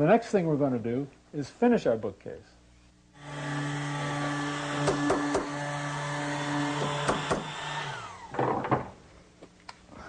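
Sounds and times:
power tool motor humming: 0:03.2 - 0:08.5.

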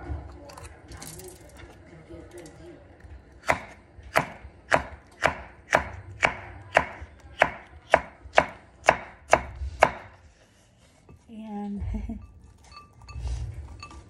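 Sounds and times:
knife chopping on a board: 0:03.4 - 0:10.2.

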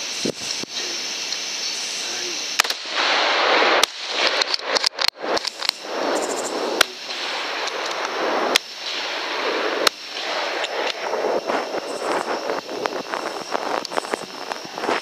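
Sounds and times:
steady rushing noise: 0:00.0 - 0:15.0
rifle shots: 0:02.6 - 0:13.8.

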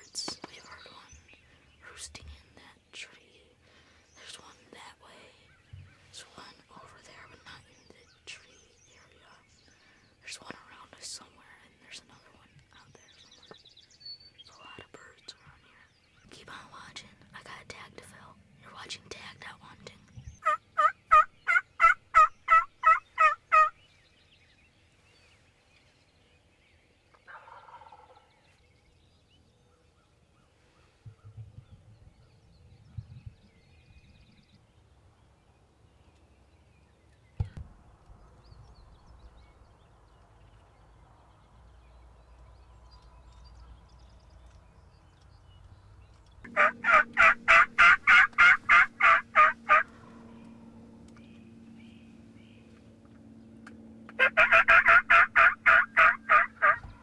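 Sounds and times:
wild turkey calling: 0:20.4 - 0:23.8, 0:27.1 - 0:28.5, 0:46.5 - 0:50.4, 0:54.1 - 0:57.0.

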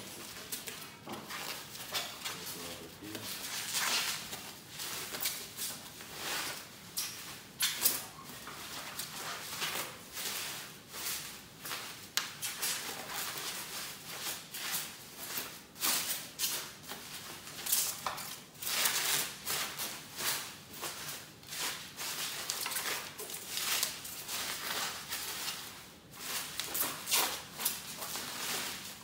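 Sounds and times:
bubble wrap crinkling: 0:00.0 - 0:29.0.

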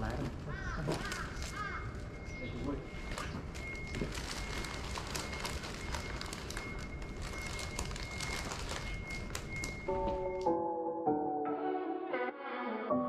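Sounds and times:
soft piano music: 0:09.9 - 0:13.0.

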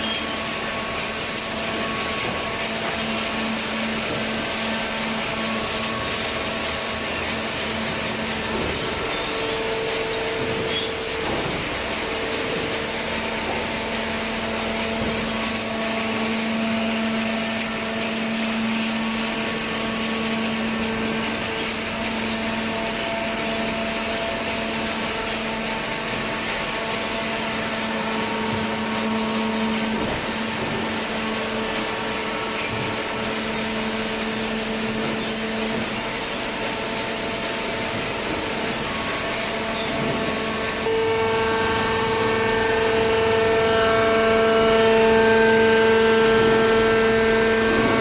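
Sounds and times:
machine hum with held tones: 0:38.6 - 0:48.0.

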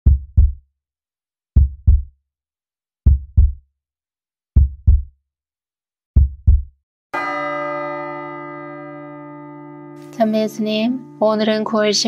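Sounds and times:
heartbeat double thumps: 0:00.0 - 0:00.6, 0:01.6 - 0:02.1, 0:03.0 - 0:03.6, 0:04.6 - 0:05.1, 0:06.2 - 0:06.8.

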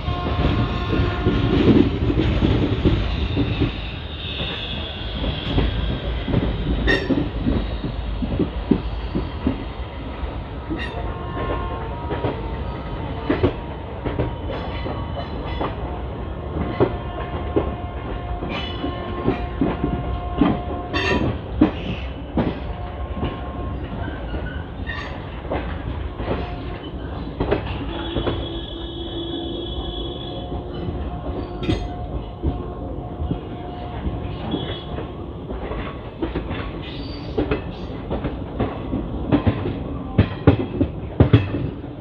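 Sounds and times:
train rumbling on rails: 0:00.0 - 0:42.0
wheels clacking over rail joints: 0:18.4 - 0:42.0.

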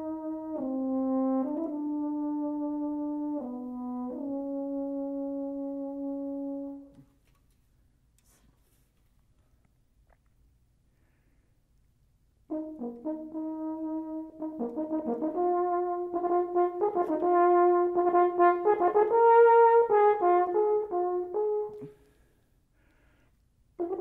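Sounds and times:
french horn playing: 0:00.0 - 0:07.2, 0:12.5 - 0:22.1, 0:23.8 - 0:24.0.

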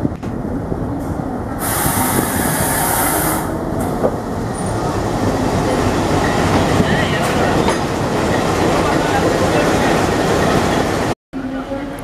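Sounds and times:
train wheels on rails: 0:00.0 - 0:11.1
sharp hiss: 0:01.6 - 0:03.5.

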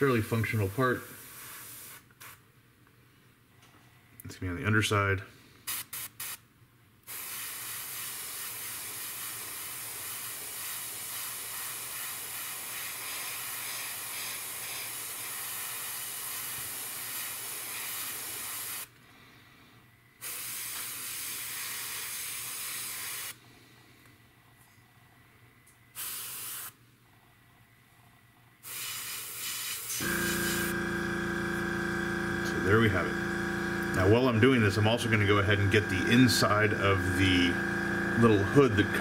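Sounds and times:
airbrush spraying hiss: 0:01.0 - 0:02.4, 0:07.1 - 0:18.9, 0:20.2 - 0:23.4, 0:26.0 - 0:26.8, 0:28.6 - 0:30.8.

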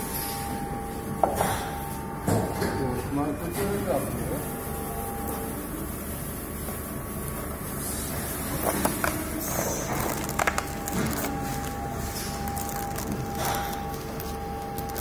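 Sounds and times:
machine hum with thin whine: 0:00.0 - 0:15.0
plastic tray crinkling: 0:09.9 - 0:15.0.

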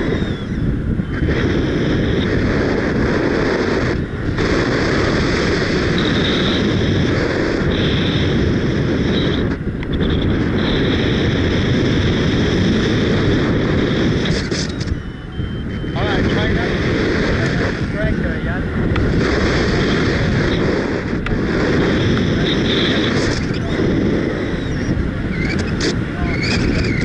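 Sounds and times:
wind buffeting microphone: 0:00.0 - 0:27.0
high steady tone: 0:05.8 - 0:11.5, 0:13.8 - 0:26.6.

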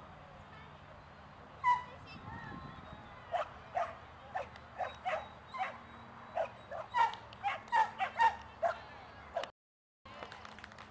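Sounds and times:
dog barking: 0:03.4 - 0:05.8, 0:06.4 - 0:08.8.

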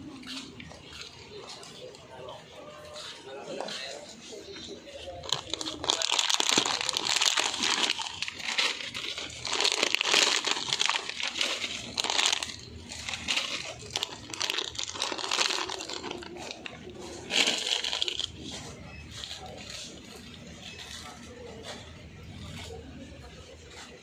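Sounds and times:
foil packets crinkling: 0:05.0 - 0:20.5.

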